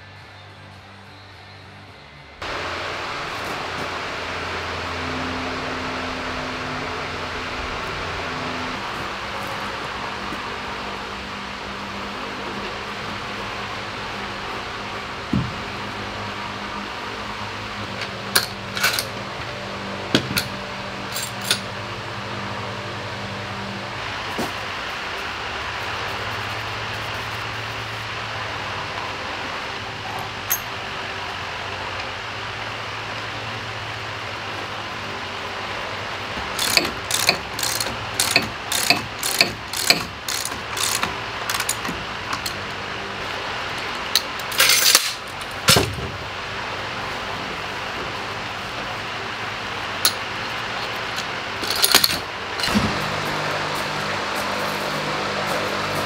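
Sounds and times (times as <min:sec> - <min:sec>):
low hum: 0:00.0 - 0:36.5
ratchet wrench ratcheting: 0:36.4 - 0:42.6, 0:51.6 - 0:52.2.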